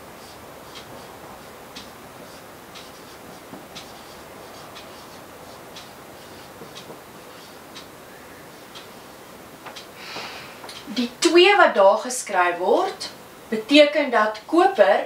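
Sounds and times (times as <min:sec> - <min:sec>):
marker writing on whiteboard: 0:00.2 - 0:07.9.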